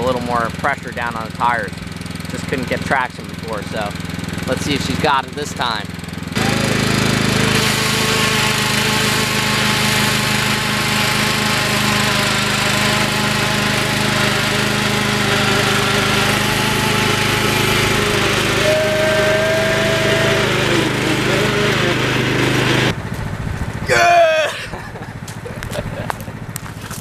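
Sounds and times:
lawn mower engine running: 0.0 - 27.0.

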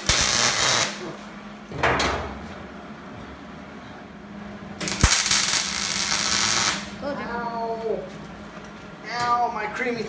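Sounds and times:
welder arc crackling: 0.0 - 1.1, 4.8 - 7.0.

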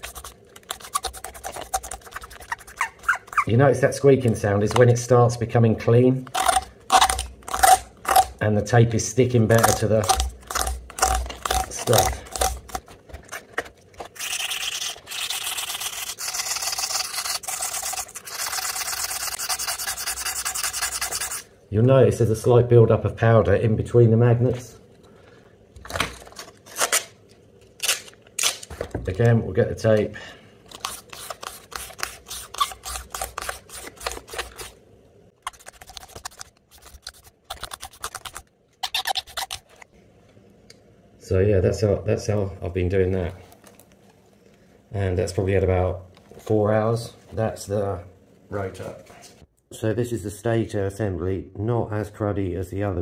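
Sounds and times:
sandpaper rubbing on metal: 0.0 - 3.5, 14.2 - 21.5
duct tape peeling crackles: 27.8 - 28.7.

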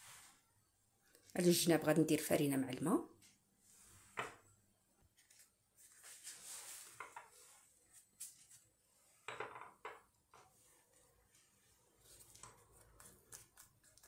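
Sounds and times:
tortilla rustling: 5.1 - 9.2, 10.5 - 14.0.

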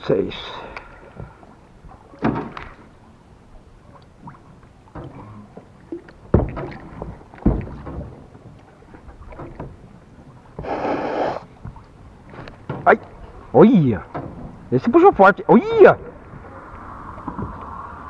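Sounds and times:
short hiss: 10.6 - 11.4.

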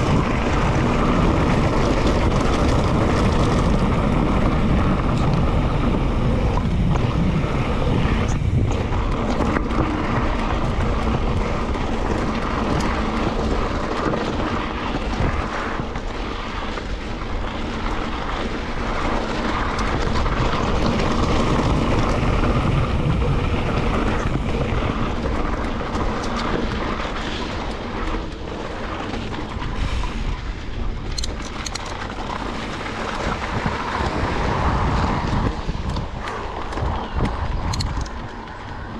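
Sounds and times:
tyres rolling on gravel: 0.0 - 38.9
wind rushing over microphone: 0.0 - 38.9.

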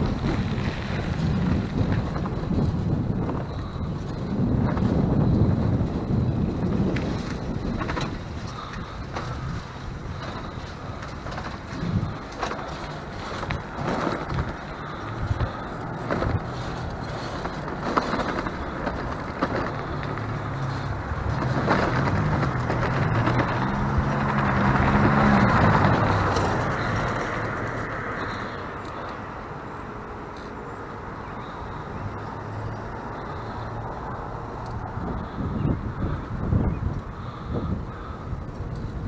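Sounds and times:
vehicle engine revving: 0.0 - 29.5
clicks and rattles: 6.9 - 29.2.

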